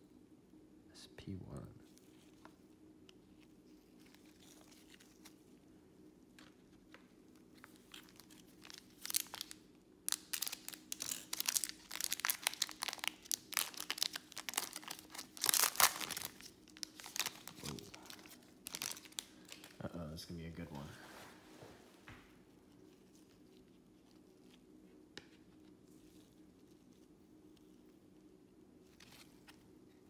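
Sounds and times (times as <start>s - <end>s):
foil wrapper tearing and crinkling: 7.6s - 19.8s.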